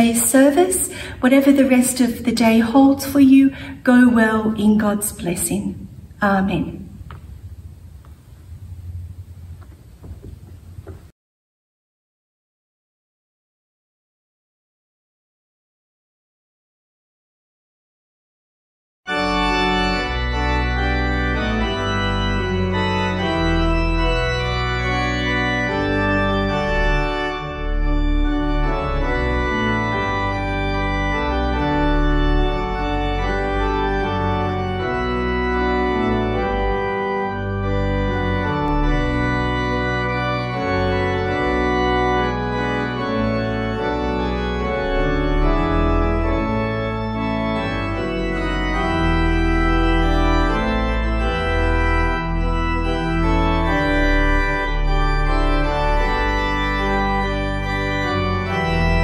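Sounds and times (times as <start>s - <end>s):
organ playing a hymn: 0.0s - 11.0s, 19.1s - 59.0s.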